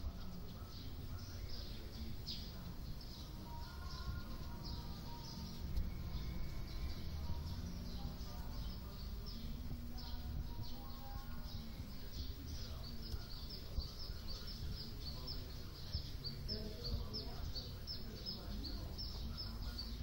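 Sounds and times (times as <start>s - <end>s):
low outdoor rumble: 0.0s - 20.0s
small birds chirping: 0.0s - 20.0s.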